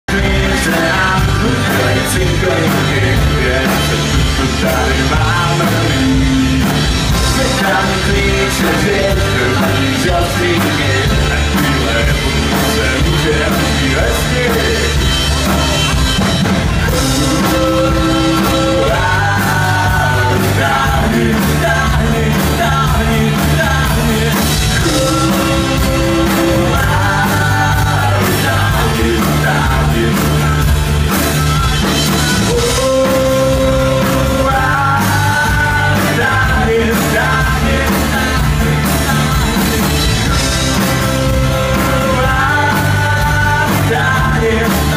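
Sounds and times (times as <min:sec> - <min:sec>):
drums: 0:00.0 - 0:44.9
electric guitars: 0:00.0 - 0:44.9
man singing: 0:00.0 - 0:44.9.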